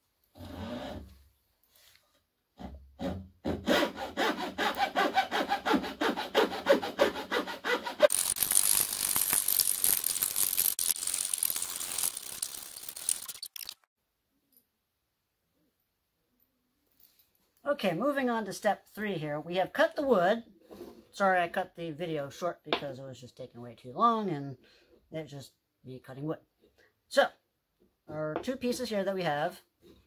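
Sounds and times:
hacksaw cutting wood: 3.5 - 8.4.

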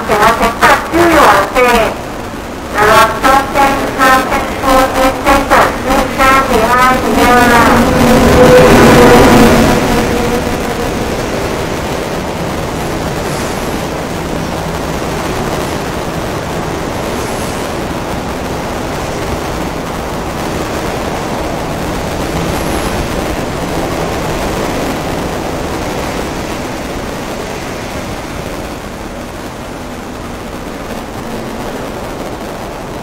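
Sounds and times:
train wheels rushing on rails: 0.0 - 33.0.

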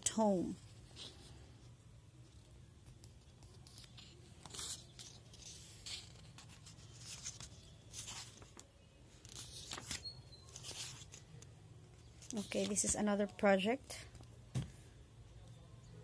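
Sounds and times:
paper pages rustling: 2.3 - 13.1.

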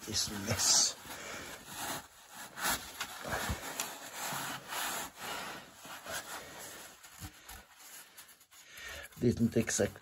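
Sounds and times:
paper towel rubbing on steel: 0.0 - 10.0.

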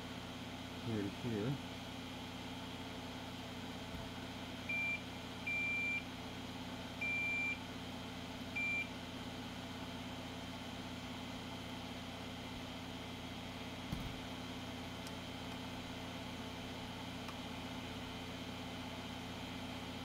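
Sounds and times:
multimeter beeping: 4.7 - 6.0, 7.0 - 7.6.

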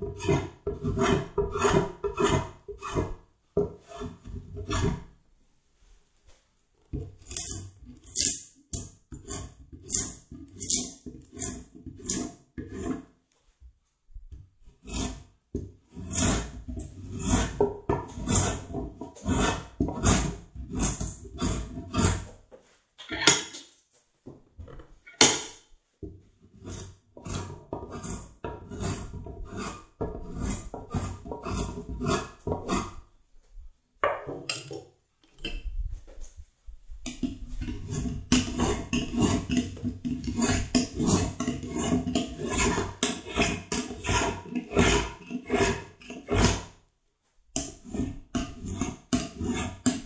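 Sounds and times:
hand tool scraping wood: 0.0 - 5.1, 6.9 - 13.2, 14.6 - 15.3, 15.9 - 22.4, 26.3 - 33.1, 37.1 - 46.8, 47.6 - 50.0.

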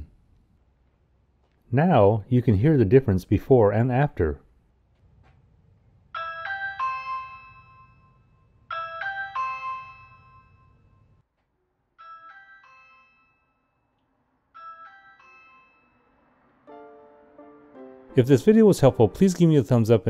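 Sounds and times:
doorbell chime ringing: 6.2 - 11.2, 12.0 - 17.5.

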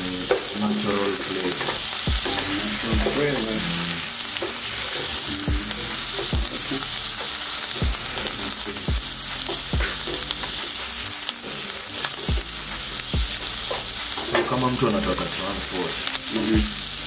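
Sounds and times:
vegetables sizzling in frying pan: 0.0 - 17.0
low thumps: 1.6 - 3.6, 5.4 - 7.2, 7.8 - 10.6, 12.3 - 14.0.

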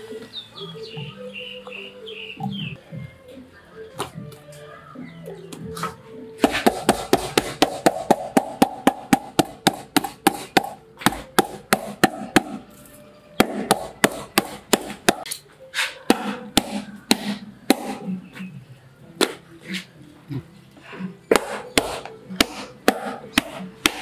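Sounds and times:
cleaver chopping on wooden block: 6.4 - 12.6, 13.4 - 15.3, 16.1 - 18.2, 21.3 - 24.0.

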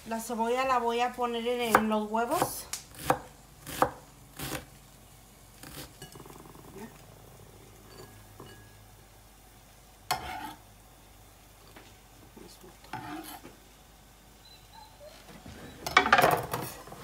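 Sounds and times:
knife scraping onion into bowl: 10.1 - 10.6, 12.9 - 13.5.

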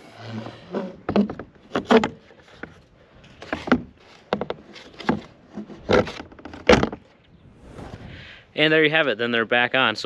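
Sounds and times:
plastic board clunking and scraping: 0.3 - 7.2.

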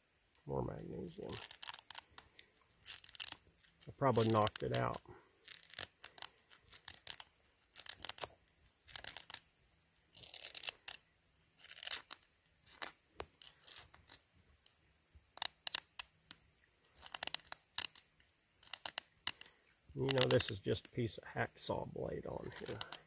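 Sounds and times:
striker scraping fire starter rod: 1.1 - 8.3, 10.1 - 11.0, 11.6 - 14.2, 15.4 - 21.0, 22.4 - 23.0.

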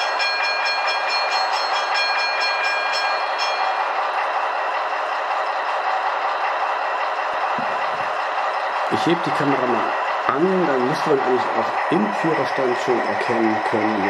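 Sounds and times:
model train bell ringing: 0.0 - 6.0
simulated diesel engine idling: 0.0 - 14.0.

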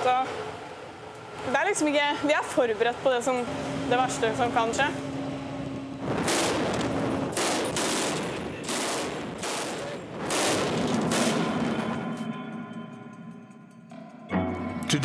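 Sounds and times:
gunshots with ringing tail: 6.0 - 12.5.

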